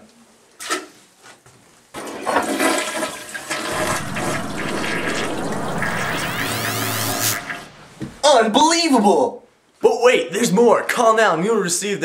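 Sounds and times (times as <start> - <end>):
rising whistle: 3.7 - 8.6.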